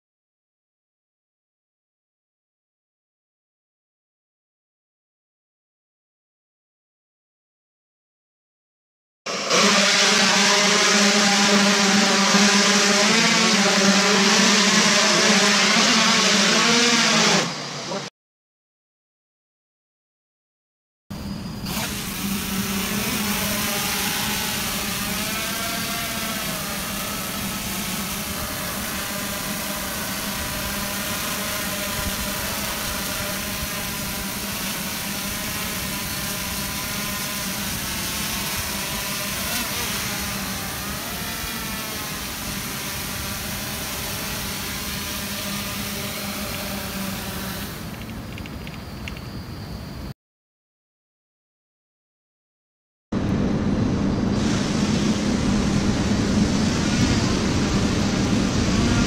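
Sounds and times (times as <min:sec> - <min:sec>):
drone motors buzzing and whining: 0:09.3 - 0:18.1, 0:21.2 - 0:50.1, 0:55.1 - 0:59.0.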